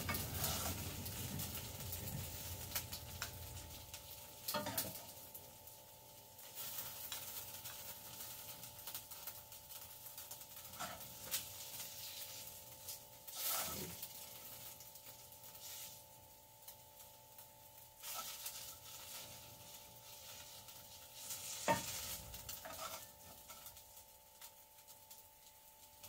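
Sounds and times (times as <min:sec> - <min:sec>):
spatula scraping pan: 0:00.0 - 0:01.3, 0:04.5 - 0:05.0, 0:10.7 - 0:12.6, 0:13.3 - 0:14.2, 0:18.0 - 0:23.8
food sizzling in hot oil: 0:00.0 - 0:26.0
steady electrical hum: 0:00.0 - 0:26.0.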